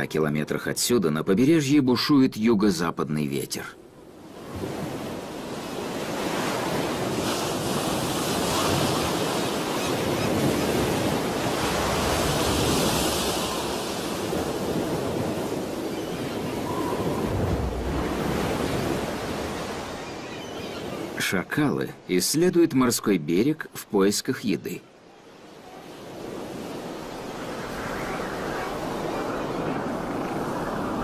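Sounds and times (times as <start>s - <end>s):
heavy surf breaking: 4.2s - 21.3s, 25.8s - 31.0s
strong wind: 4.4s - 20.0s, 25.6s - 31.0s.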